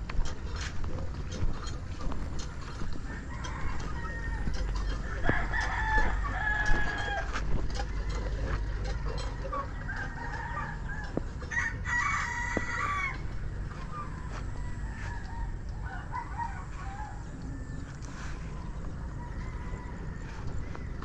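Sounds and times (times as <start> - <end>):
low steady rumble: 0.0 - 21.0
roosters crowing: 0.0 - 21.0.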